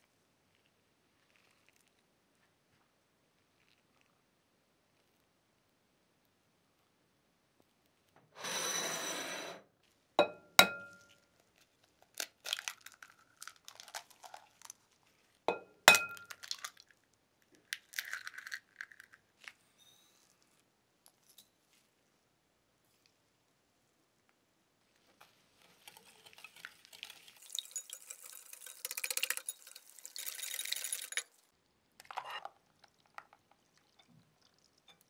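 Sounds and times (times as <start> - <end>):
glass bowl sliding on countertop: 8.4 - 9.6
eggs tapped on ringing glass bowl: 10.2 - 11.1, 15.5 - 16.3
eggshell crackling: 10.5 - 19.6, 25.2 - 35.0.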